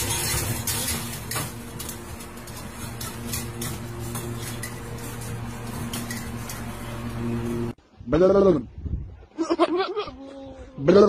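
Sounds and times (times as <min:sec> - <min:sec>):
wire cage rattling: 0:00.0 - 0:07.6
steady low hum: 0:00.0 - 0:09.5.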